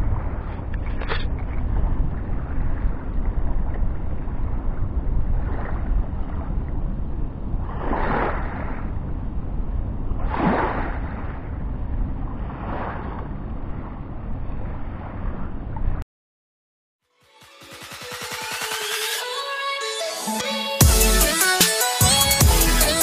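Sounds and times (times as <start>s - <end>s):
wind rumbling on microphone: 0.0s - 16.0s
small waves washing in: 5.2s - 6.6s, 7.6s - 9.0s, 10.2s - 11.6s, 12.2s - 14.0s.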